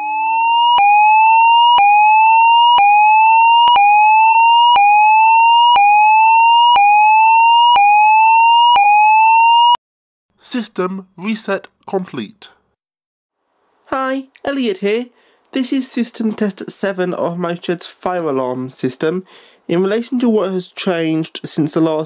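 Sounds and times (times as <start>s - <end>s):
fire alarm sweeping tone: 0.0s - 9.8s.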